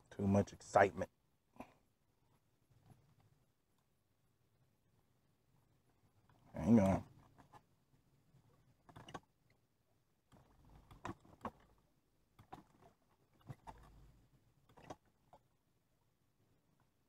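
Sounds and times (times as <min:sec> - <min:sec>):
faint clicks and knocks: 0:05.8 - 0:09.6, 0:10.2 - 0:15.6.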